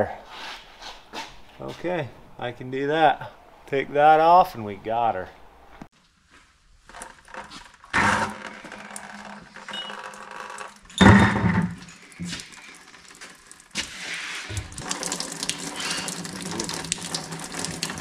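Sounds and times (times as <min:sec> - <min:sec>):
liquid pouring into a pan: 0:12.0 - 0:18.0.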